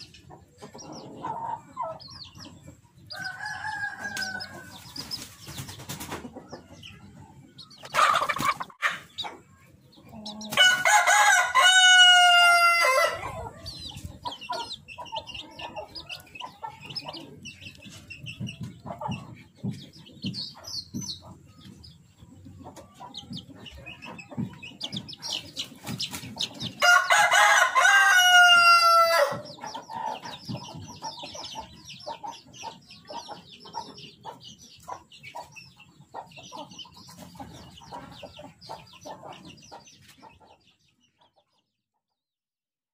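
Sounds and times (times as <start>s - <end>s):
chicken clucking: 0.0s - 42.2s
rooster crowing: 3.1s - 4.8s, 10.6s - 13.4s, 26.8s - 29.4s.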